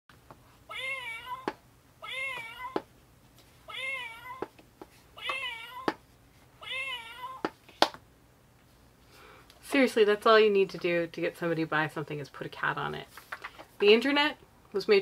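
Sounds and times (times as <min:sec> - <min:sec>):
recorded cat meow: 0:00.7 - 0:02.8, 0:03.7 - 0:04.5, 0:05.2 - 0:06.0, 0:06.6 - 0:07.5.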